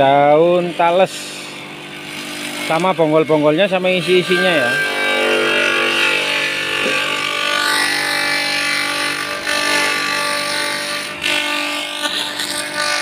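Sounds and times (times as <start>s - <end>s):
leaves being shredded: 0.0s - 13.0s
motor hum: 0.0s - 13.0s.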